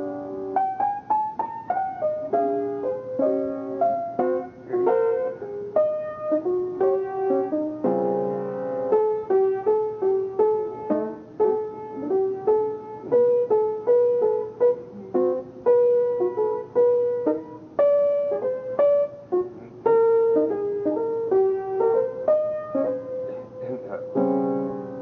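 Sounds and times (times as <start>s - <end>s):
jazz piano melody: 0.0s - 25.0s.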